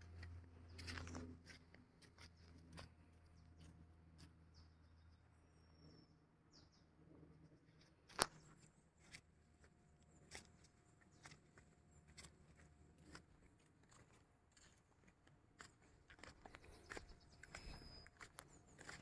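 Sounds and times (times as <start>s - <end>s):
footsteps on dry cracked mud: 0.0s - 4.4s, 8.1s - 19.0s.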